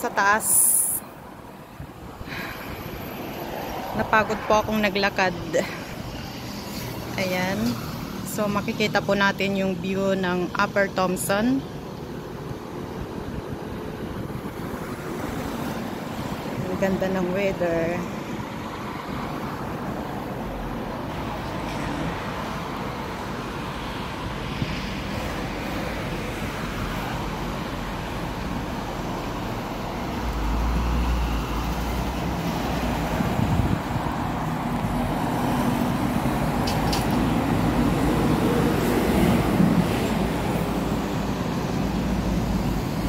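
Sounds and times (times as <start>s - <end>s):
bus passing with low rumble: 0.0s - 43.0s
road traffic: 0.0s - 43.0s.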